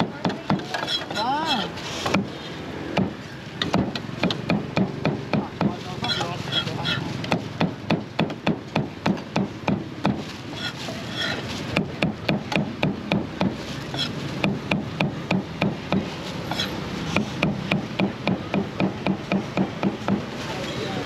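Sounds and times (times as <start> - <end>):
cleaver chopping on wooden board: 3.0 - 6.2, 7.2 - 20.3.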